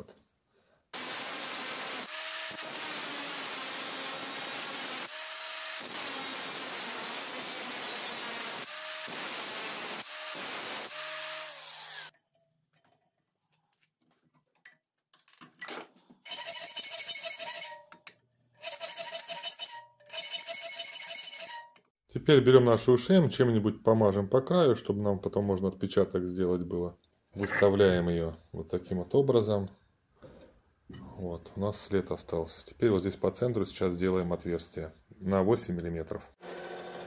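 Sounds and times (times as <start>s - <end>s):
angle grinder cutting steel: 1.0s - 12.1s, 18.6s - 21.6s.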